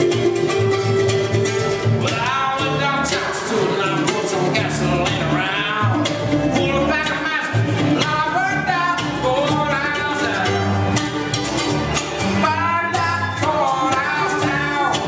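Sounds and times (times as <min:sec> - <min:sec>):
acoustic guitar: 0:00.0 - 0:15.0
bass: 0:00.0 - 0:15.0
mandolin: 0:00.0 - 0:15.0
man singing lead: 0:01.9 - 0:10.9, 0:12.2 - 0:15.0.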